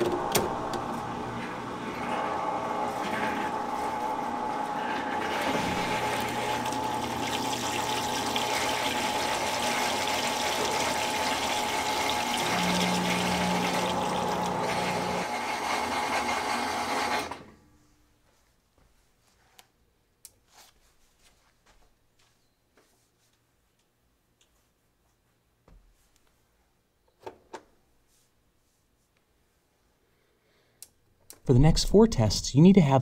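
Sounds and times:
washer drain pump whining: 0.0s - 17.6s
water gushing into standpipe: 4.9s - 15.3s.

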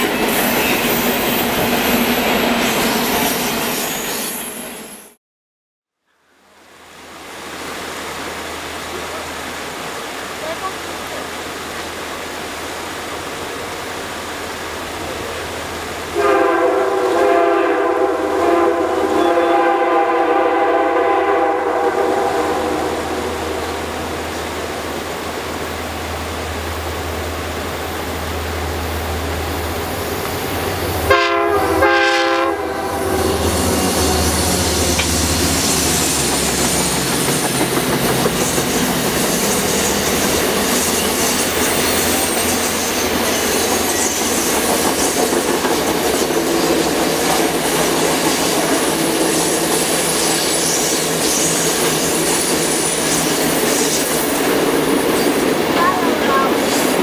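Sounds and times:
diesel locomotive engine rumble: 8.7s - 57.0s
train horn: 16.1s - 24.1s, 30.8s - 36.0s
train wheels clattering on rails: 33.6s - 57.0s.

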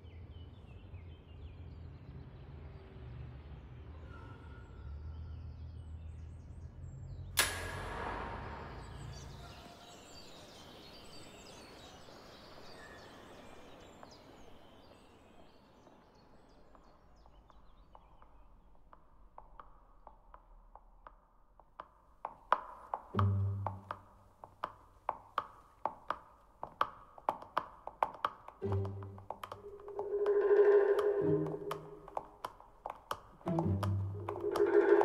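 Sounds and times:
sharp bang echoing: 7.4s - 10.2s
hooves clopping on tile floor: 9.0s - 35.0s.

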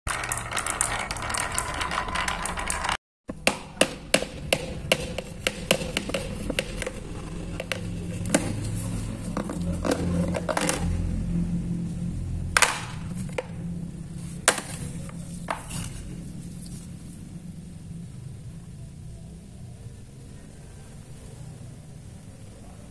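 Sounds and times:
marbles clattering down pegboard: 0.1s - 3.5s, 9.4s - 11.0s
sharp clicks and knocks: 0.1s - 11.1s
low rumble: 7.0s - 18.9s.

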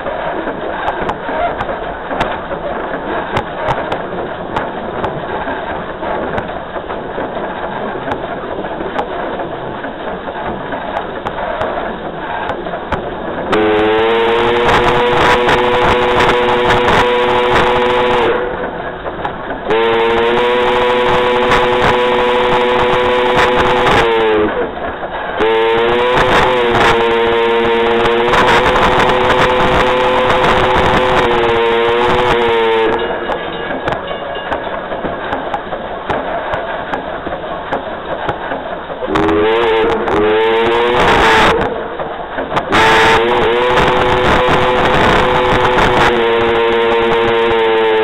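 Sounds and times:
train running noise: 0.0s - 48.0s
steam locomotive whistle blasts: 13.5s - 18.7s, 19.7s - 24.7s, 25.4s - 34.4s, 39.1s - 42.0s, 42.7s - 48.0s.

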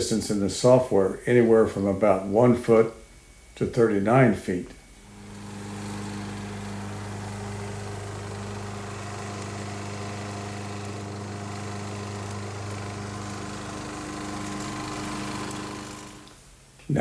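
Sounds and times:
lawn mower engine running: 5.0s - 16.3s.

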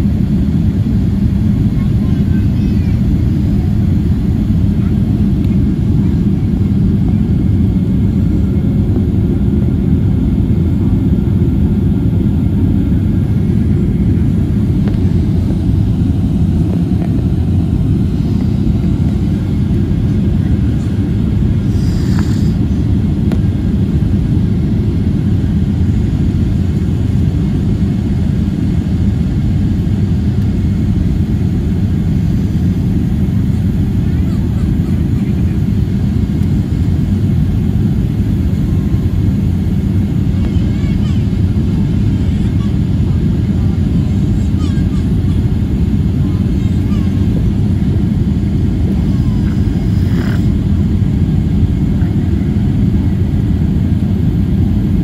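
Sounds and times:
airplane cabin engine rumble: 0.0s - 55.0s.

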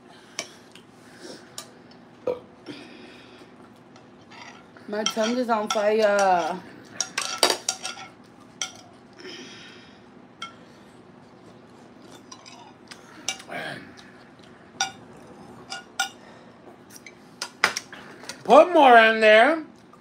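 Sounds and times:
forks clinking on plates: 4.3s - 8.9s, 10.4s - 10.6s.

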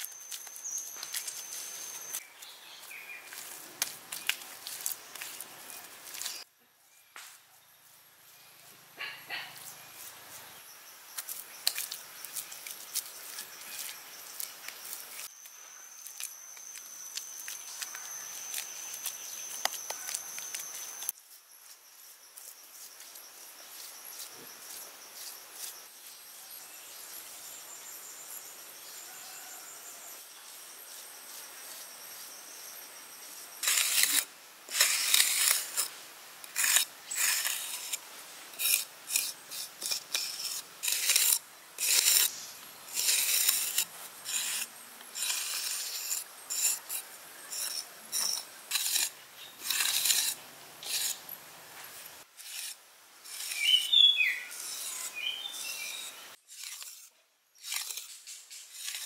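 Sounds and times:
rasping scraping strokes: 33.6s - 59.0s.

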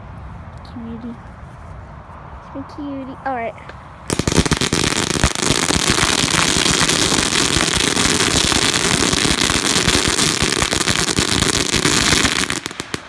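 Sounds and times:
firecrackers cracking: 4.1s - 13.0s.

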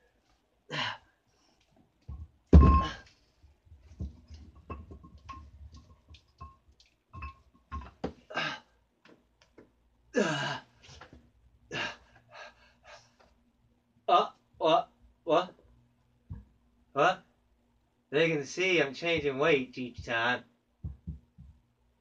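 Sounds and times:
grunts and breaths of effort: 0.7s - 1.1s, 8.3s - 8.8s, 10.2s - 10.9s, 11.7s - 13.2s
loud thump: 2.5s - 3.0s
weights clicking and knocking: 3.8s - 8.2s.

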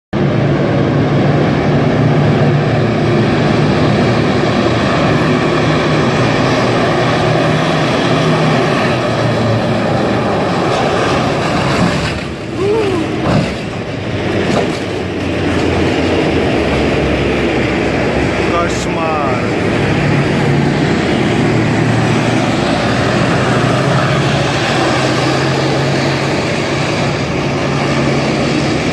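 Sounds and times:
tank engine drone: 0.1s - 28.9s
steel tracks clattering: 6.1s - 18.5s.

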